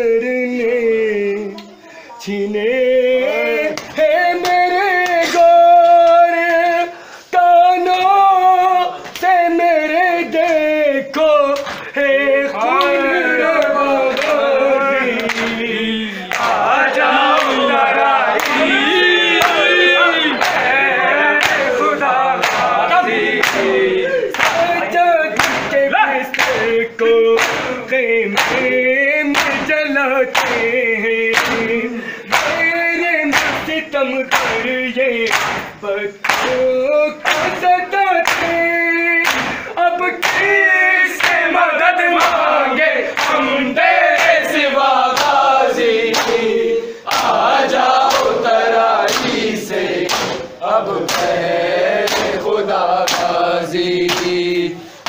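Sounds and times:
men's chorus chanting: 2.2 - 55.0
palms slapping chests: 24.3 - 41.5, 49.0 - 51.4, 54.0 - 54.6.

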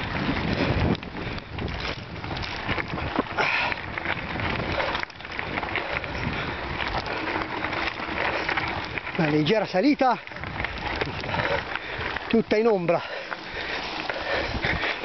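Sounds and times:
bike knocks and rattles: 0.0 - 5.6
tyres rushing on dirt trail: 0.0 - 15.0
wind buffeting microphone: 0.0 - 15.0.

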